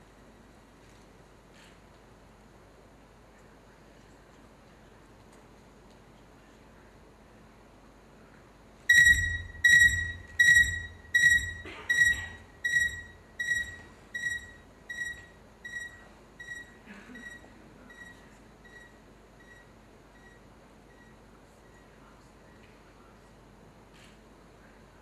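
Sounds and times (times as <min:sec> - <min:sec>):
electronic beeps with low thud: 0:08.9 - 0:19.6.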